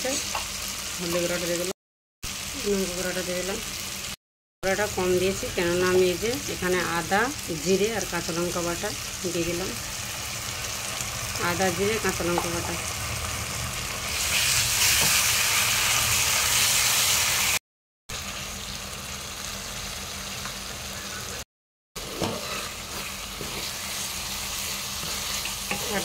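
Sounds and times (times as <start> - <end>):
masala sizzling in hot oil: 0.0 - 21.4, 22.0 - 26.0
spatula stirring and scraping: 22.0 - 26.0.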